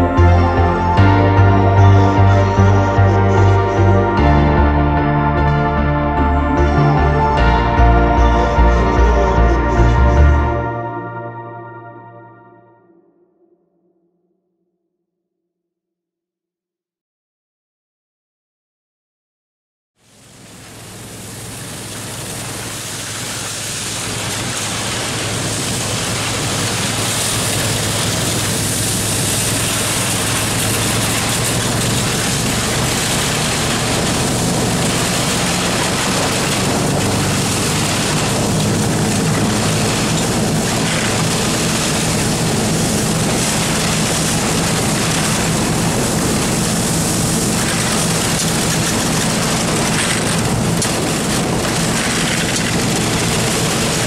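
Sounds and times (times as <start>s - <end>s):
snowmobile engine running: 0.0s - 11.2s, 20.7s - 54.0s
wind: 20.0s - 54.0s
track noise on ice: 20.6s - 54.0s.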